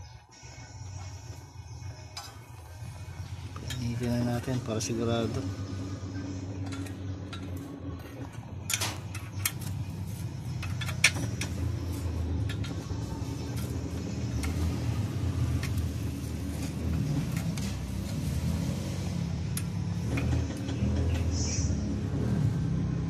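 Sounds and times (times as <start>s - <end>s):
metal rod clinking and scraping: 6.5s - 13.8s.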